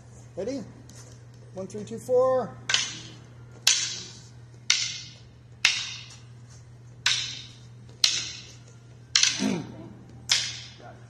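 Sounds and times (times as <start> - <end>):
wooden sticks clacking: 2.7 - 6.3, 7.0 - 10.9.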